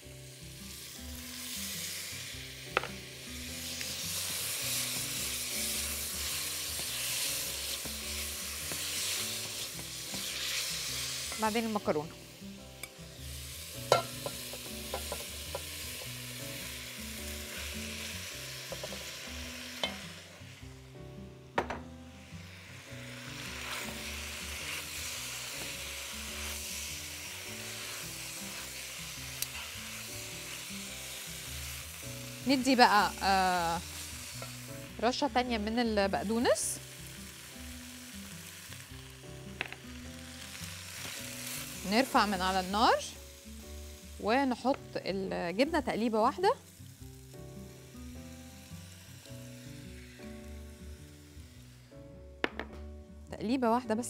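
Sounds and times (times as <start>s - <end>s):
food sizzling in a pan: 0.0s - 54.0s
soft background music: 0.0s - 54.0s.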